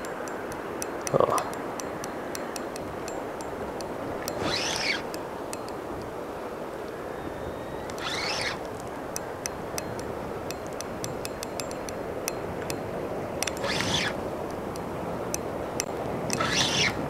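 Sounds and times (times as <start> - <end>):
light clicks: 0.0 - 7.0, 7.8 - 17.0
short high calls: 4.3 - 5.1, 7.0 - 8.6, 13.6 - 14.2.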